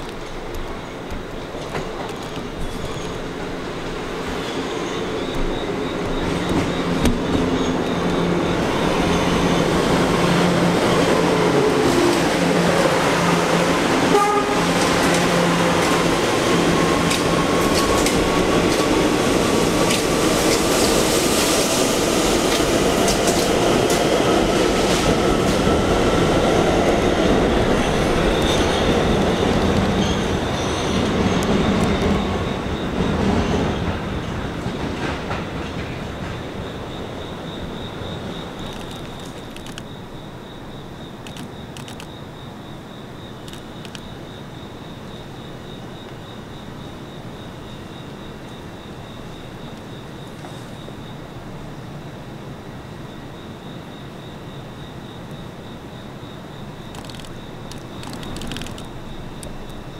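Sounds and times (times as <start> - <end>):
train wheels clacking: 14.6 - 21.6, 27.8 - 37.4.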